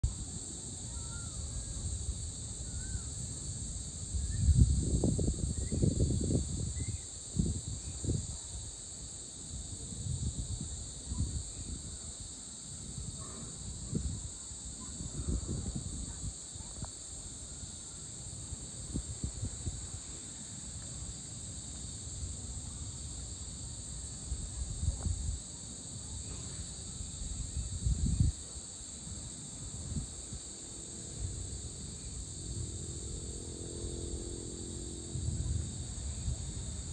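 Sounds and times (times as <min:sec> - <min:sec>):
crickets and insects chorus: 0:00.0 - 0:36.9
faint bird chirps: 0:00.9 - 0:01.7, 0:02.6 - 0:03.1.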